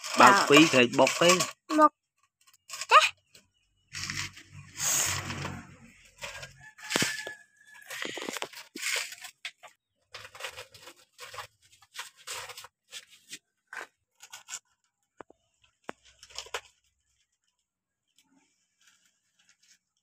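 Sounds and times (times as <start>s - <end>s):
toy bucket scraping dirt: 0.0s - 14.7s.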